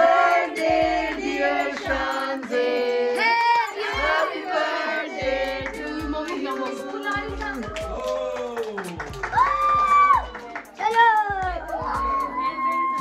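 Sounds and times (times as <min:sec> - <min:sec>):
several voices singing: 0:00.0 - 0:08.4
light steady beat: 0:00.0 - 0:13.0.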